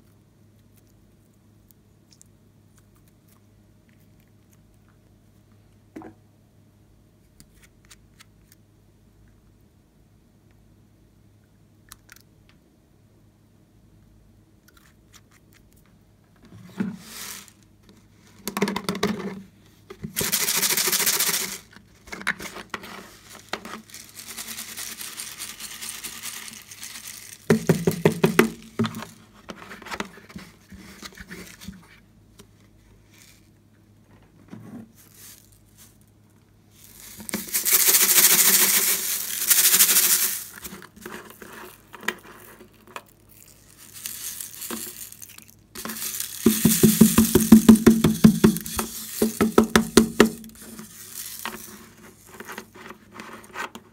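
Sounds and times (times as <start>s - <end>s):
beads pouring with a hiss: 17.0s - 17.7s, 20.2s - 21.7s, 22.9s - 29.2s, 34.9s - 36.1s, 36.7s - 52.8s.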